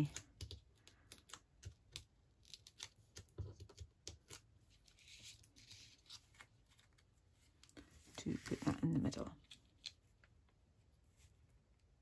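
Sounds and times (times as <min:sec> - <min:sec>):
soft paper clicks and taps: 0:00.0 - 0:04.5.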